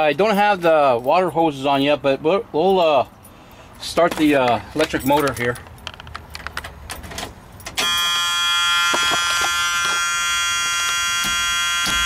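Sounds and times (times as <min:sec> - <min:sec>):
high-pitched electric buzz: 0:07.8 - 0:12.0.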